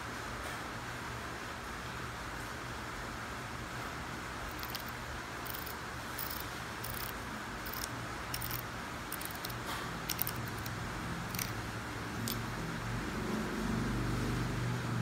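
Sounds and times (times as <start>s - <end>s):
low background hum: 0.0s - 15.0s
tattoo pen clicking in hands: 4.5s - 4.9s, 5.5s - 11.6s, 12.2s - 12.4s.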